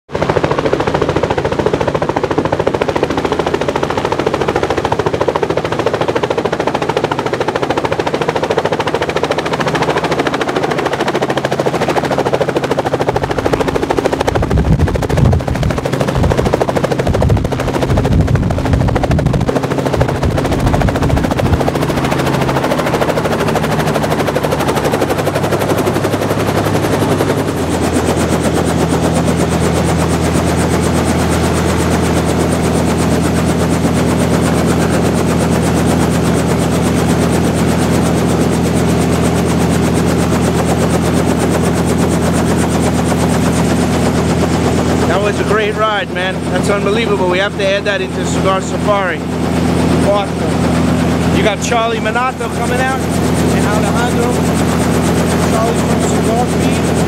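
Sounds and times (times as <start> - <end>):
helicopter engine running: 0.1 - 57.0
helicopter rotor beating: 0.1 - 57.0.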